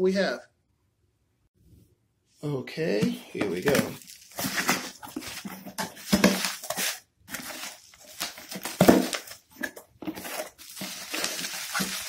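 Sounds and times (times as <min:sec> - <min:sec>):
bubble wrap crinkling: 0:03.4 - 0:12.0.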